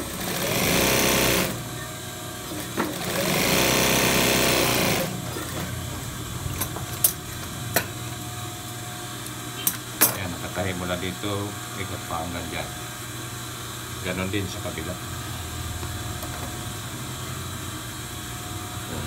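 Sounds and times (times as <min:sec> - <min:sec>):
sewing machine stitching: 0:00.0 - 0:01.6, 0:02.8 - 0:05.6.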